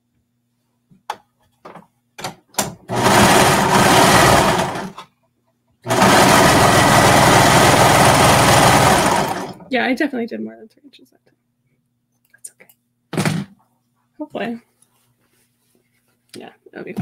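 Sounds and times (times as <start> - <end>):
sewing machine stitching: 2.9 - 5.0, 5.9 - 9.6.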